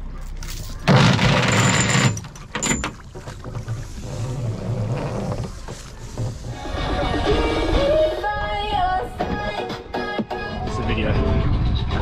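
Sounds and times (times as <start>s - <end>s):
water noise: 0.1s - 9.6s
wind noise: 10.5s - 12.0s.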